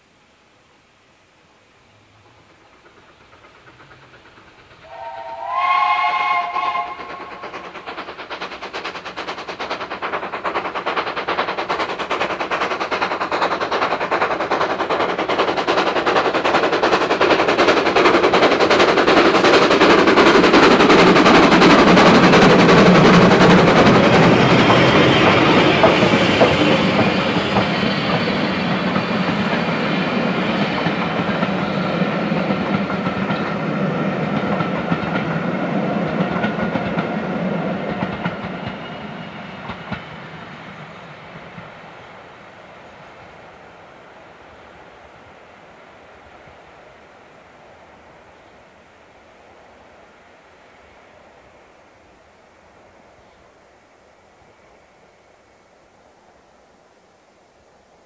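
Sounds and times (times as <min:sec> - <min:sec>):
steam train chugging past: 0:01.6 - 0:58.0
coaches clickety-clack on rails: 0:02.1 - 0:44.2
steam locomotive whistle: 0:04.8 - 0:07.6.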